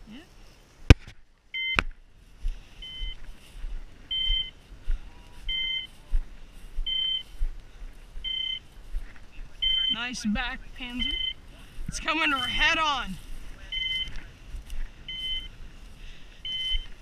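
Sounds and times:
two-tone electronic beep: 0:01.6 - 0:01.8, 0:02.8 - 0:03.2, 0:04.1 - 0:04.6, 0:05.5 - 0:05.9, 0:06.9 - 0:07.3, 0:08.2 - 0:08.7, 0:09.6 - 0:10.1, 0:11.0 - 0:11.4, 0:13.7 - 0:14.2, 0:15.1 - 0:15.5, 0:16.4 - 0:16.9.

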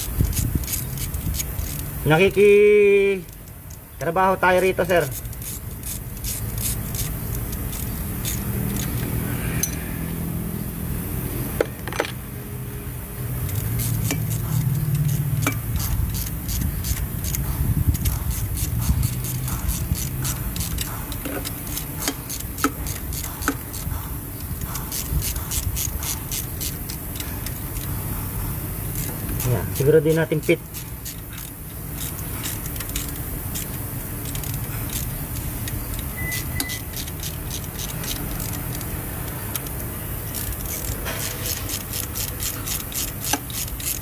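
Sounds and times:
metal tools clinking: 0:00.0 - 0:09.9, 0:11.6 - 0:12.2
ratchet wrench clicking: 0:00.0 - 0:10.6, 0:13.1 - 0:44.0
steady low hum: 0:00.0 - 0:44.0.

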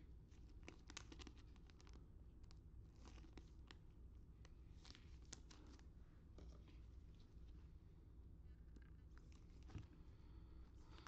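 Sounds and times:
cards and plastic sleeve rustling: 0:00.4 - 0:03.8.

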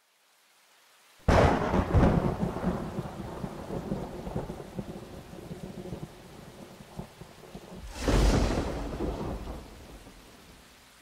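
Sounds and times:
steady rainfall: 0:00.0 - 0:11.0
thunderclap rumbling: 0:07.6 - 0:10.6.

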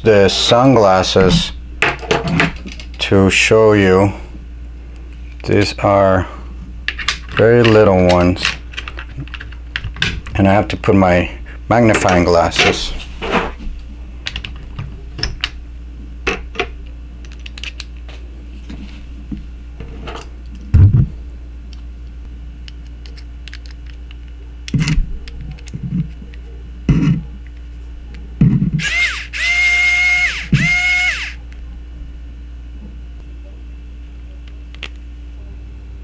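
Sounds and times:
metal screwdriver bits clicking: 0:22.8 - 0:24.2
electric screwdriver motor whine: 0:28.8 - 0:31.4.

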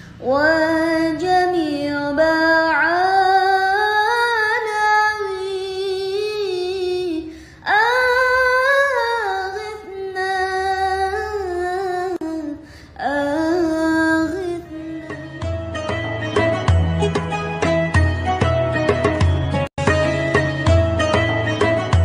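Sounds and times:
instrumental music with deep bass: 0:13.4 - 0:22.0.

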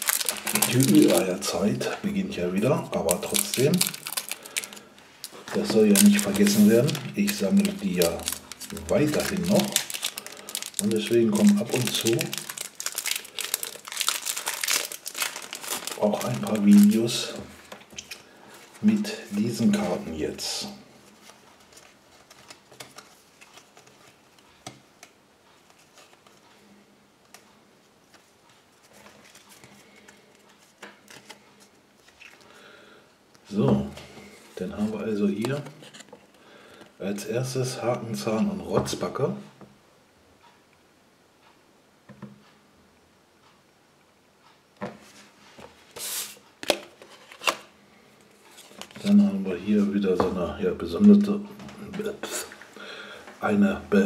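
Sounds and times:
card scraping rustle: 0:00.0 - 0:01.4, 0:03.1 - 0:17.0
soft handling rustles: 0:02.9 - 0:32.6, 0:44.8 - 0:53.6.

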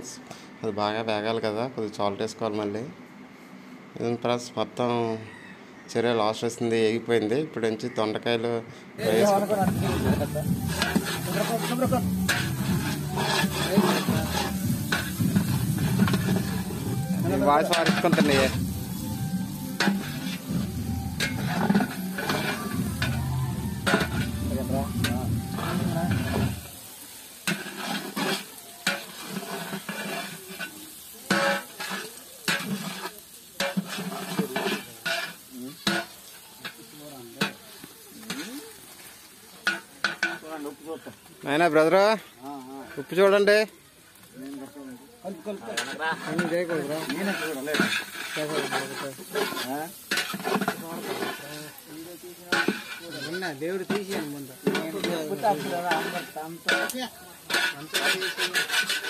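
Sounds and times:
light sizzle: 0:09.0 - 0:59.0
ladle scraping steel pot: 0:09.1 - 0:26.8, 0:27.4 - 0:36.8, 0:45.7 - 0:51.8, 0:52.5 - 0:59.0.

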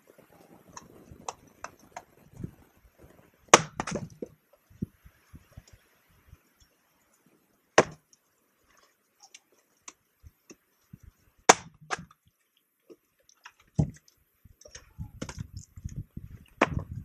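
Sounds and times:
axe splitting firewood: 0:03.5 - 0:04.3, 0:07.8 - 0:08.1, 0:11.4 - 0:12.2, 0:13.6 - 0:14.0, 0:14.6 - 0:16.0, 0:16.6 - 0:17.0.

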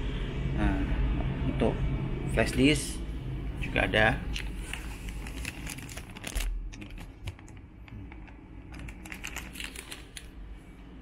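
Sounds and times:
laptop keys clicking: 0:06.8 - 0:10.3.

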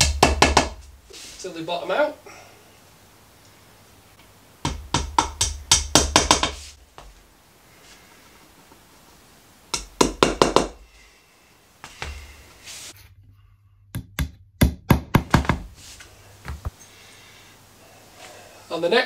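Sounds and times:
hammer tapping wooden dowels: 0:00.0 - 0:00.9, 0:04.6 - 0:06.7, 0:09.7 - 0:10.8, 0:14.0 - 0:15.7.

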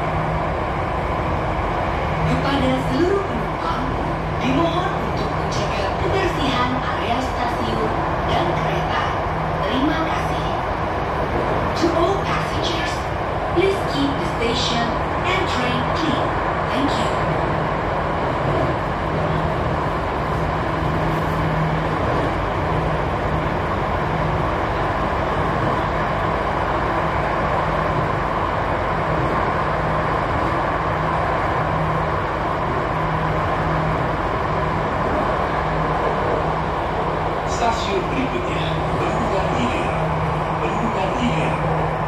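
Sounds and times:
train wheels rumbling on rail: 0:00.0 - 0:42.0.

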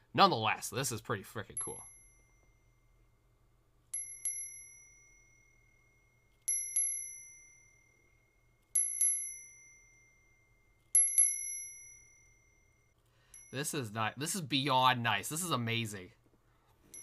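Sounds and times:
small bell chiming: 0:01.6 - 0:03.2, 0:03.9 - 0:14.6.

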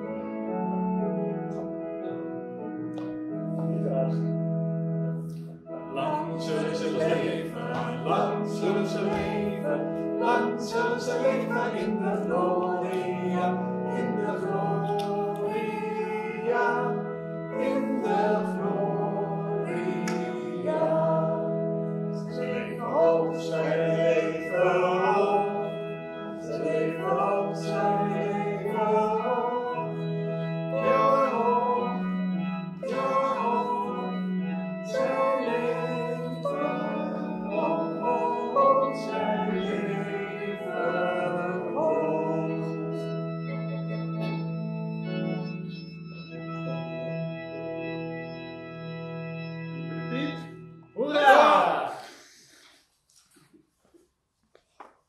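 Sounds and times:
organ notes: 0:00.0 - 0:51.9
voices singing: 0:05.9 - 0:43.2, 0:51.0 - 0:52.5.

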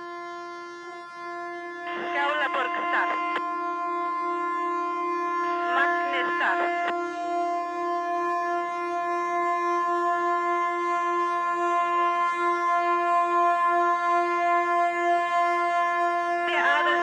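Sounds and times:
ship's horn long note: 0:00.0 - 0:17.0.

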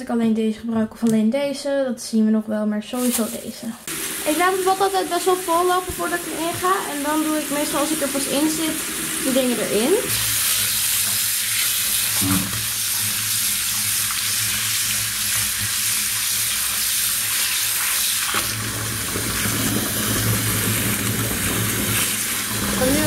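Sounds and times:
bath tap running water: 0:03.0 - 0:23.0.

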